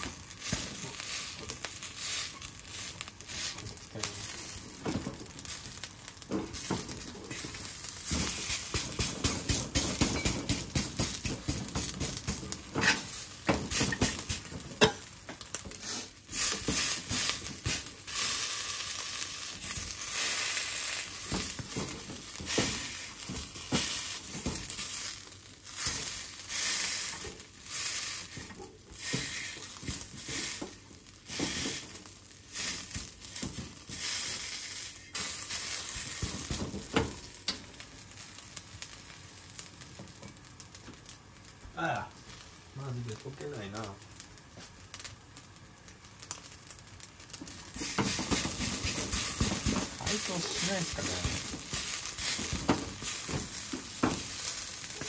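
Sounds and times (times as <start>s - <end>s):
rice sizzling in a wok: 0.0s - 55.0s
wooden spatula scraping a wok: 6.5s - 15.0s, 15.7s - 25.2s, 25.8s - 31.9s, 32.5s - 36.9s, 47.7s - 55.0s.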